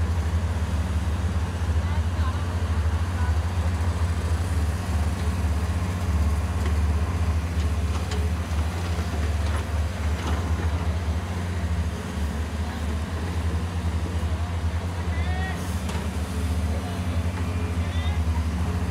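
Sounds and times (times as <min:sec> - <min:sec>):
excavator diesel engines rumbling: 0:00.0 - 0:18.9.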